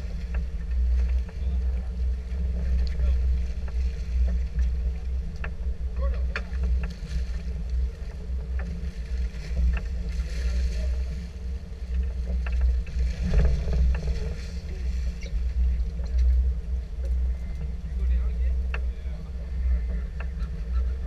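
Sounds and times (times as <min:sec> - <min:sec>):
water splashing against boat: 0:00.0 - 0:21.0
wind rumble on microphone: 0:00.0 - 0:21.0.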